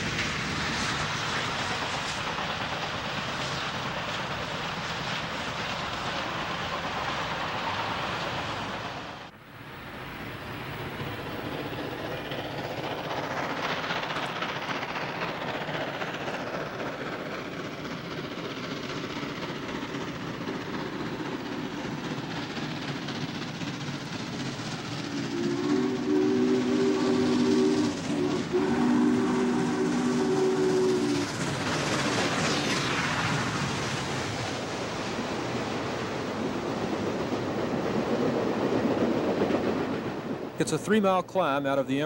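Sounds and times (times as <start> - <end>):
steam locomotive exhaust: 0.0 - 35.4
steam locomotive whistle: 25.1 - 31.3.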